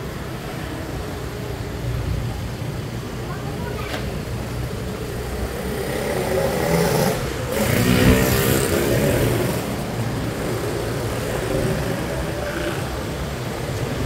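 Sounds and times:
road noise: 0:00.0 - 0:14.0
motorbike engine: 0:04.3 - 0:14.0.

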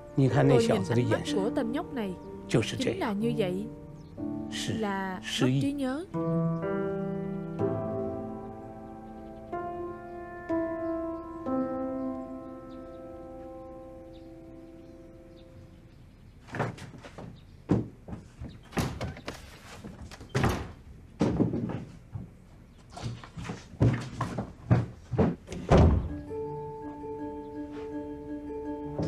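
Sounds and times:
soft music: 0:00.0 - 0:16.4, 0:25.8 - 0:29.0.

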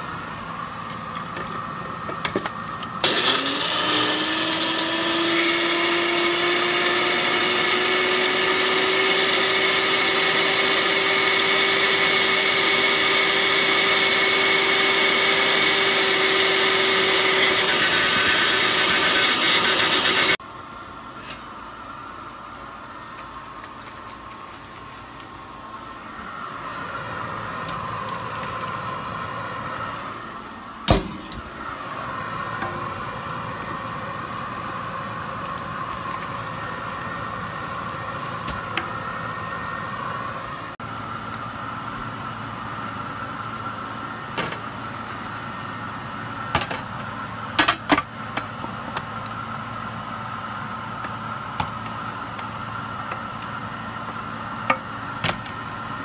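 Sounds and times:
blender running: 0:03.0 - 0:20.4.

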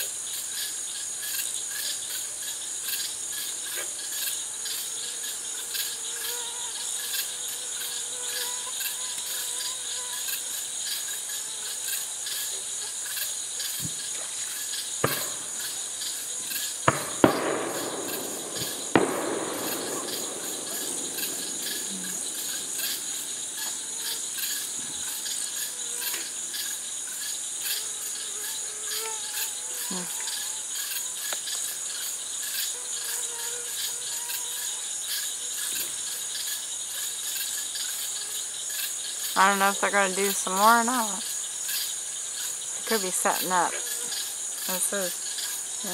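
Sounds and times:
night insects chirping: 0:00.0 - 0:45.9
distant fireworks bangs: 0:15.0 - 0:15.8, 0:16.5 - 0:25.0.

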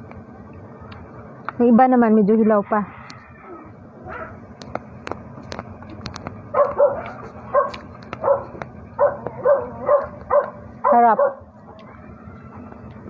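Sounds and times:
dog barking: 0:04.1 - 0:04.4, 0:06.5 - 0:11.4.

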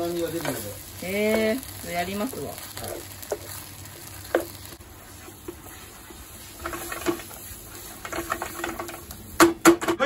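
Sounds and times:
food sizzling in a frying pan: 0:00.0 - 0:10.0
spatula scraping and tapping: 0:04.2 - 0:09.9.

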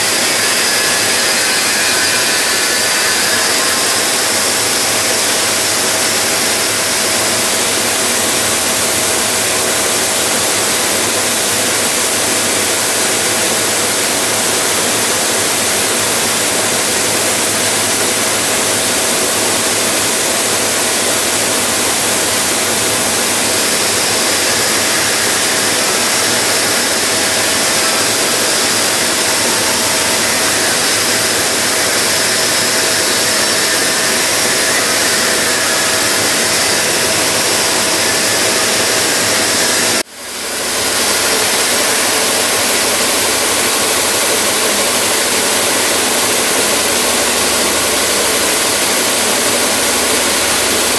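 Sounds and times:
tube polisher hissing rush: 0:00.0 - 0:07.4, 0:19.3 - 0:40.1.

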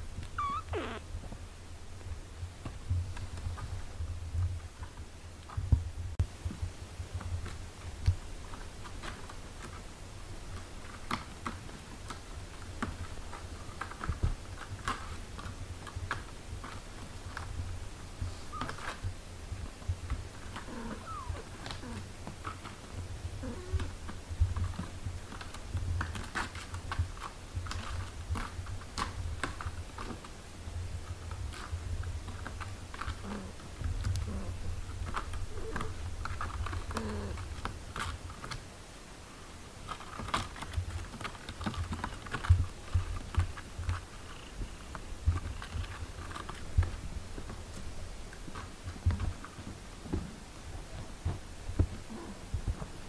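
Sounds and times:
faint kitten squeaks: 0:00.2 - 0:01.1, 0:18.3 - 0:18.9, 0:20.7 - 0:22.0.

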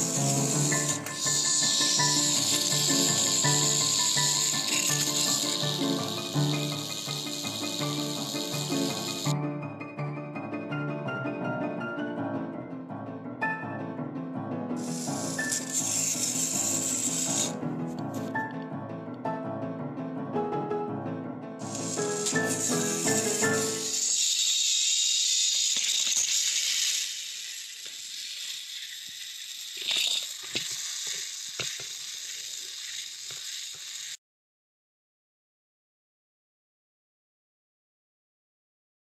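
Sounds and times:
toy train motor whirring: 0:00.0 - 0:09.4, 0:14.8 - 0:18.5, 0:21.6 - 0:34.2
light background music: 0:00.0 - 0:24.1.

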